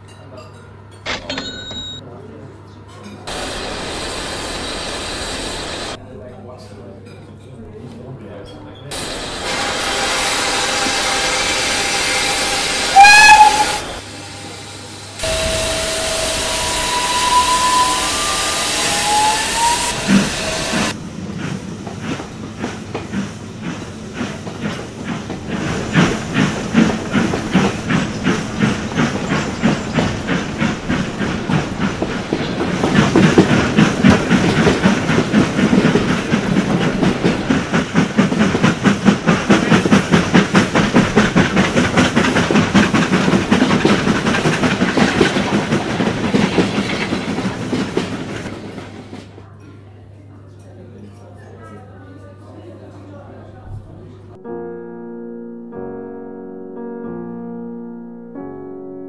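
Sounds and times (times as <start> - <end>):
locomotive chuffs: 3.3 - 6.0, 8.9 - 49.4
steam locomotive hissing: 3.3 - 6.0, 8.9 - 49.4
steam whistle: 9.1 - 21.0.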